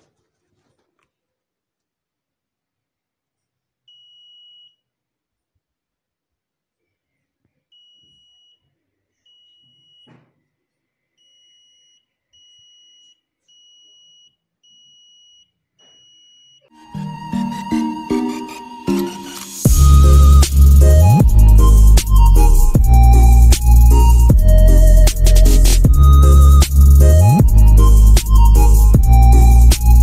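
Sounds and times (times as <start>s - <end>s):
knock: 10.1s - 10.4s
high buzzer beeps: 11.2s - 16.7s.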